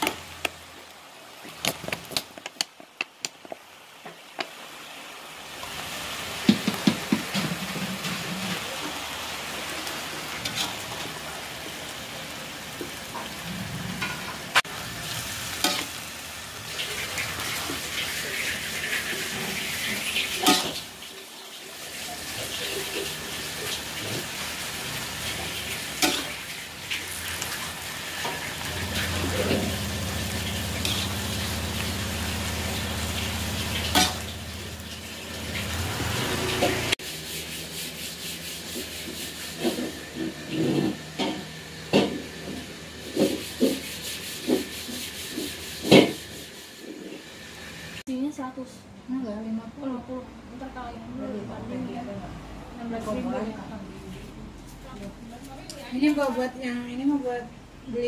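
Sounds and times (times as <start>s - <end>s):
greens sizzling in a pot: 0.0s - 48.6s, 52.9s - 57.4s
metal spatula scraping a pot: 36.4s - 41.4s.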